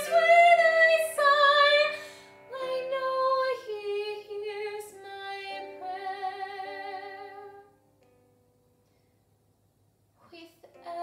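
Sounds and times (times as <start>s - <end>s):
girl singing a ballad: 0.0s - 7.7s, 10.2s - 11.0s.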